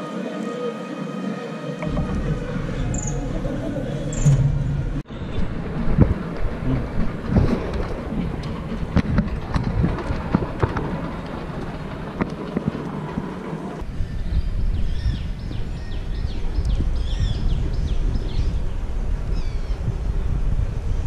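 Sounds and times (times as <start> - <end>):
wind rumble on microphone: 1.8 - 21.0
small birds chirping: 2.7 - 4.3.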